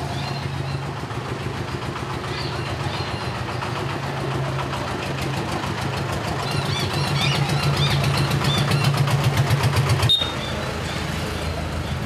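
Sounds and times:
street traffic: 0.0 - 12.0
vehicle engine idling: 0.0 - 12.0.

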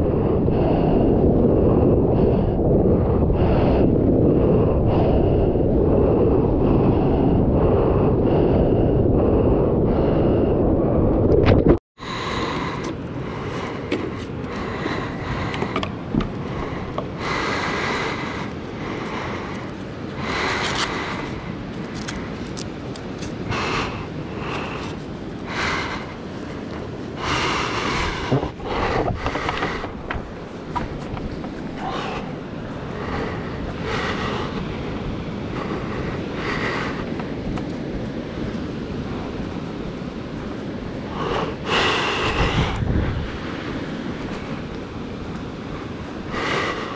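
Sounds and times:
wind buffeting microphone: 0.0 - 46.9
churning surf water: 12.0 - 46.9.

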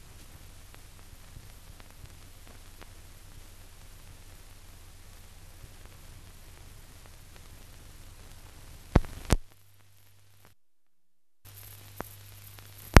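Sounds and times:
film soundtrack hiss and hum: 0.0 - 13.0
sharp pops: 8.9 - 9.6.

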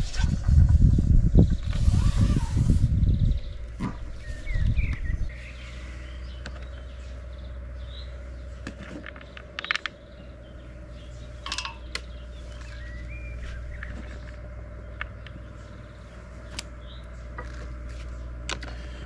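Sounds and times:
wind rumble on microphone: 0.0 - 5.4
bird chirps: 3.0 - 18.4.

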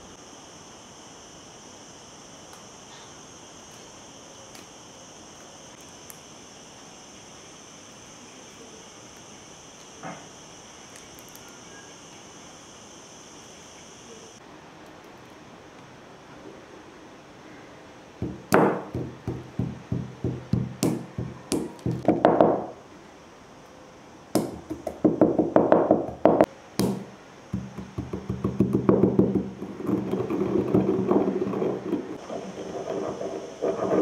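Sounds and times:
pestle pounding in stone mortar: 18.2 - 22.8, 24.4 - 32.2
pestle scraping seeds: 24.4 - 34.0.

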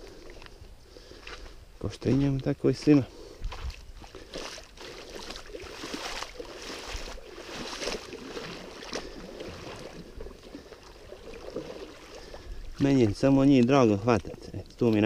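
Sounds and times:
stream water splashing: 3.1 - 15.0.

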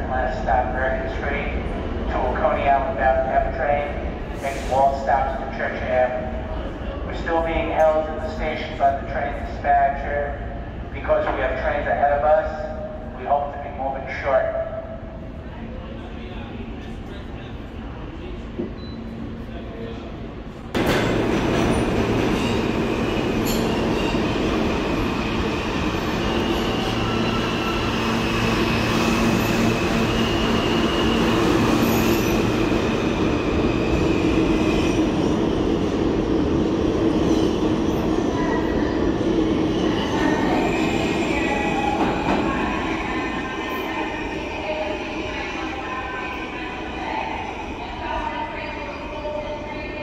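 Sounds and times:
train rumble: 0.0 - 50.0
train wheels squealing on rails: 21.0 - 35.7, 37.1 - 46.5.

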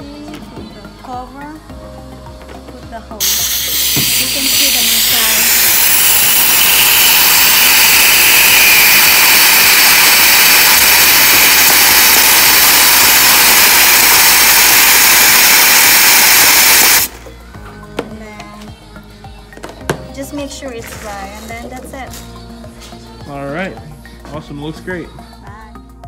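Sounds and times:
compressed air blow gun hissing: 3.2 - 17.1.

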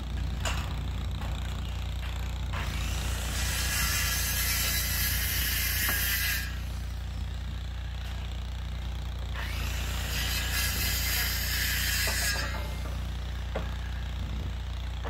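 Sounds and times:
circular saw cutting wood: 0.0 - 8.2, 9.2 - 14.3
engine idling drone: 0.0 - 15.0.

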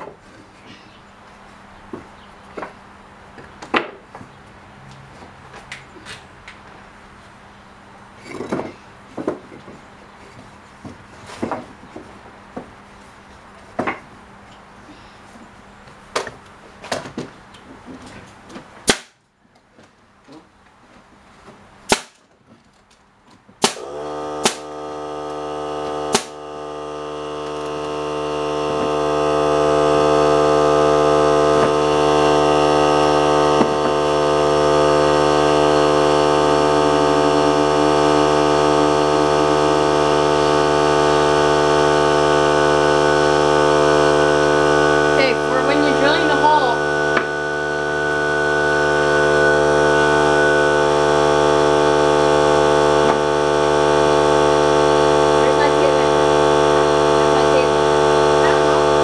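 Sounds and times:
nailer shots: 18.8 - 19.2, 21.9 - 22.3, 23.6 - 24.8, 26.1 - 26.4
air compressor humming: 23.5 - 59.0.

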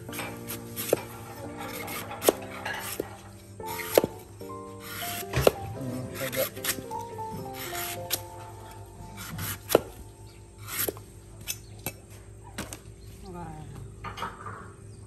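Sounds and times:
knife scraping slices: 0.0 - 10.0, 10.6 - 11.7
soft background music: 0.0 - 12.4
cleaver chopping coconut: 0.1 - 12.0.

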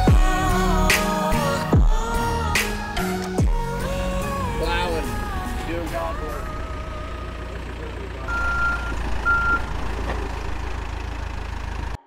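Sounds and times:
diesel engine rumbling: 0.0 - 12.0
backup alarm beeps: 8.3 - 9.7.

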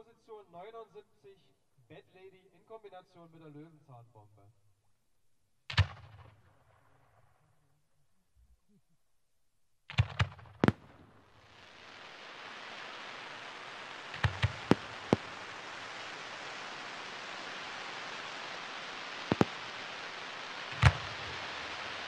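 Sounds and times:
firework bangs: 9.9 - 22.0
firework hissing crackle: 10.0 - 22.0.

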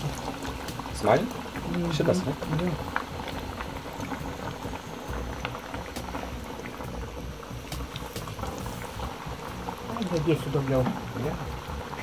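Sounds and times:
food deep-frying with pops: 0.0 - 12.0.

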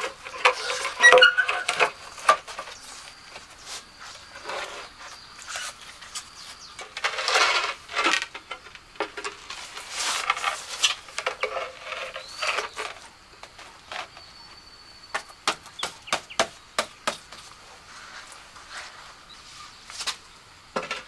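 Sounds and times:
scraping hard materials: 0.0 - 14.2.

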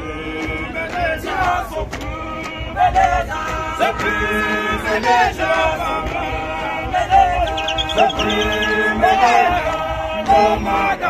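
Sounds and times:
male choir singing in harmony: 0.0 - 11.0.

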